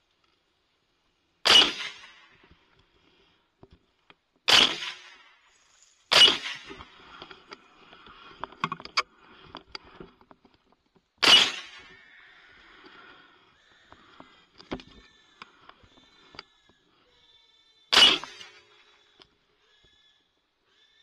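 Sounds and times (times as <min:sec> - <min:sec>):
rifle shots: 0:01.4 - 0:02.3, 0:04.5 - 0:05.3, 0:06.1 - 0:07.2, 0:11.2 - 0:12.0, 0:17.9 - 0:18.7.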